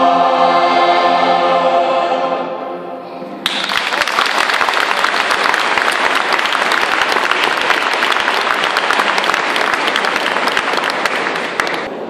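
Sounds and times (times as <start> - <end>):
audience applauding: 3.4 - 11.9.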